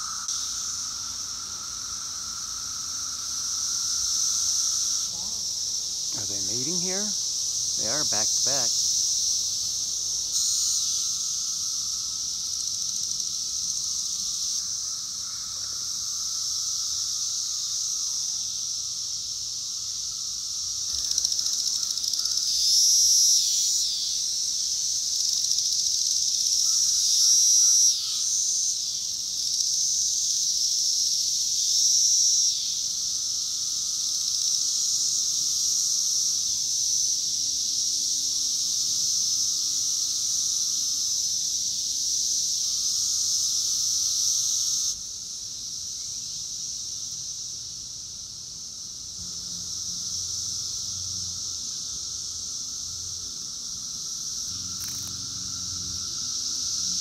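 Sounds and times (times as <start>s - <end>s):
cicadas chorus: 0.0s - 57.0s
low buzzing cicada calls: 0.0s - 57.0s.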